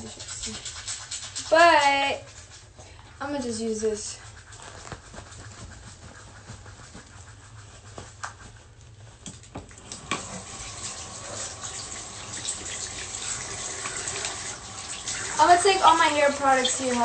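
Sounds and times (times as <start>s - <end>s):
running water: 9.7s - 17.0s.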